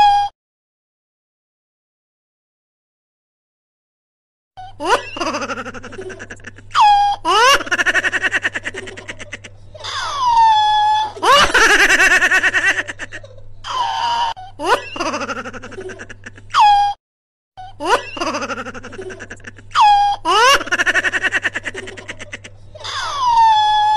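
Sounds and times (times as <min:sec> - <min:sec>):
high-pitched laughter: 0:04.6 - 0:17.0, 0:17.6 - 0:23.9.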